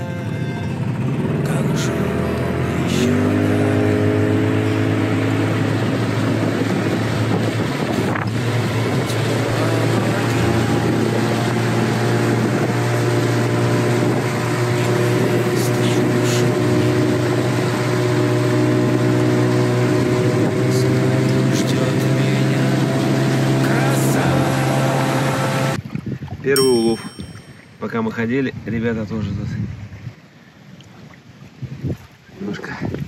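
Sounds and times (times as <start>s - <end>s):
engine running steadily: 0.0s - 25.8s.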